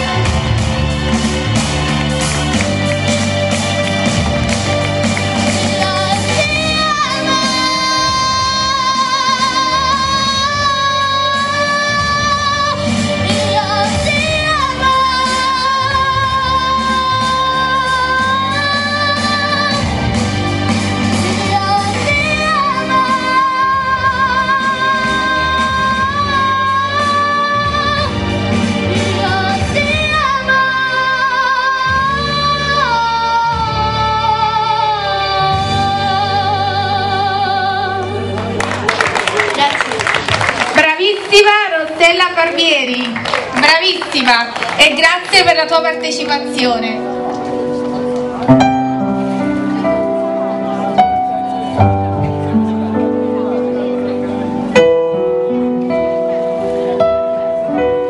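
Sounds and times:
backing track music: 0.0s - 58.0s
girl singing into a microphone: 5.6s - 20.1s, 21.2s - 38.3s.

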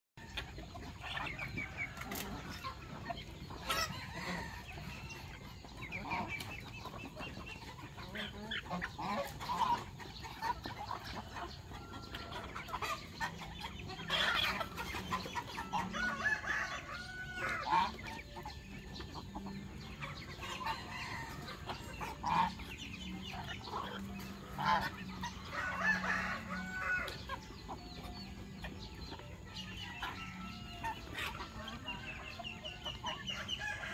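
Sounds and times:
chickens clucking: 0.2s - 33.9s.

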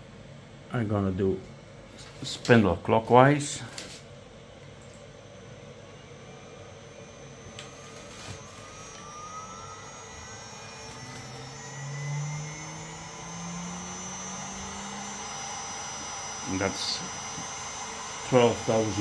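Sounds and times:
motor whine rising in pitch: 4.7s - 19.0s.

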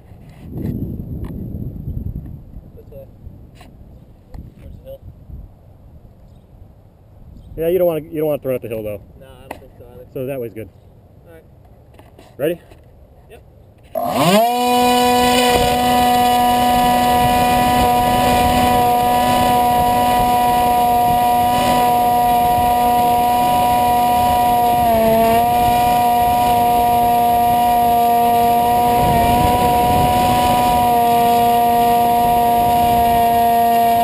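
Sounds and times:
electric motor propeller hum: 14.0s - 34.0s.

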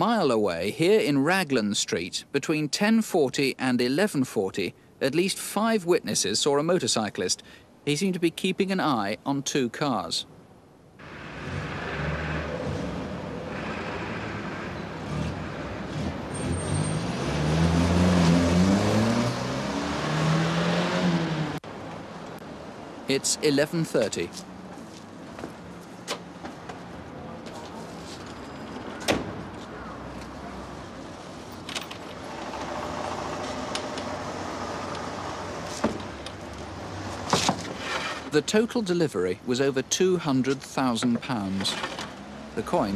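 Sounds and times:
street traffic: 0.0s - 42.9s
van engine passing close: 11.0s - 21.6s, 32.2s - 36.2s.

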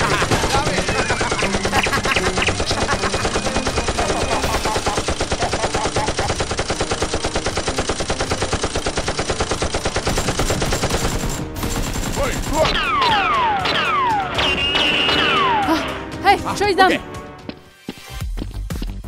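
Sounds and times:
rapid machine-gun fire: 0.0s - 12.6s.

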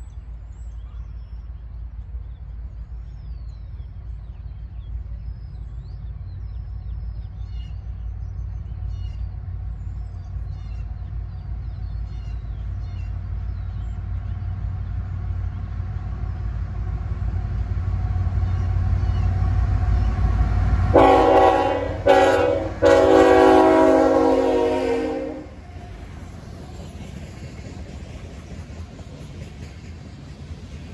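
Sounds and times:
diesel locomotive engine rumble: 0.0s - 30.9s
locomotive horn blasts: 20.9s - 25.6s.

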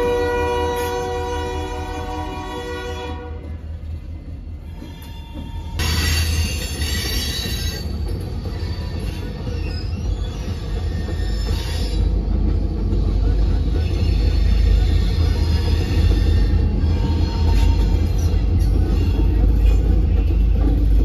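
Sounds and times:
locomotive horn chord: 0.0s - 3.5s.

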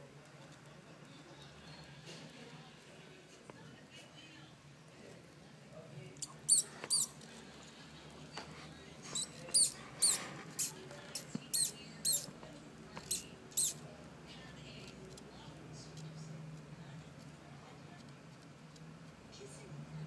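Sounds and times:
baby mouse squeaking: 6.2s - 7.2s, 9.1s - 12.4s, 13.0s - 13.8s.

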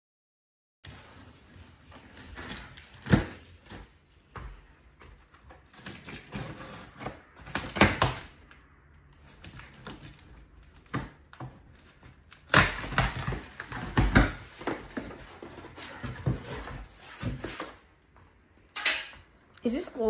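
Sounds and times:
packing tape ripping: 1.5s - 3.9s, 9.2s - 15.2s.

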